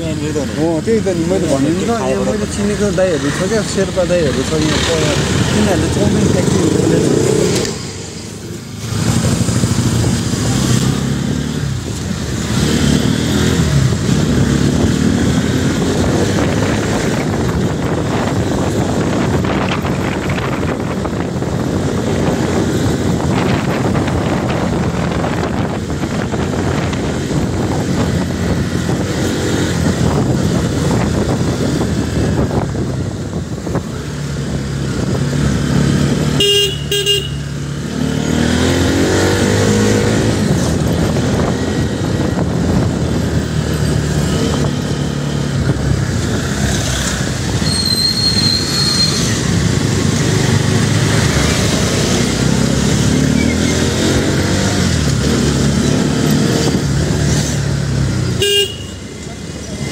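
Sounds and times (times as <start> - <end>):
wind on microphone: 11.6 - 36.4, 38.2 - 47.7
vehicle horn toot: 36.4 - 37.5, 58.4 - 59.0
short high-pitched squeal: 47.6 - 49.4.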